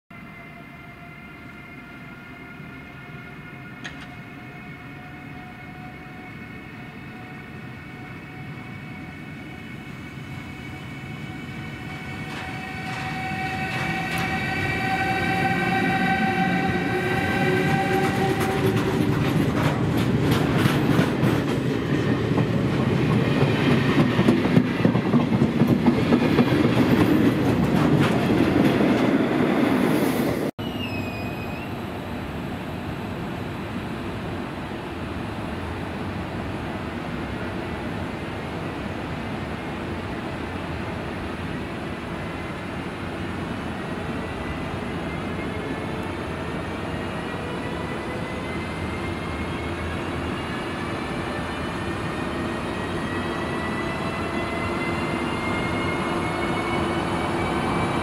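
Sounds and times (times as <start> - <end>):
electric locomotive whine: 0.1 - 58.0
train rumble: 1.8 - 30.5.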